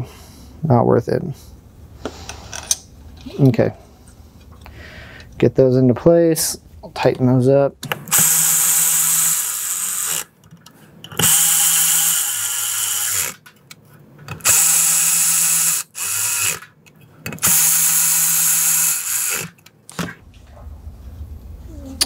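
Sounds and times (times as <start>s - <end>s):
electric ratchet driving bolts: 7.9s - 10.3s, 11.1s - 13.4s, 14.3s - 16.7s, 17.3s - 19.6s.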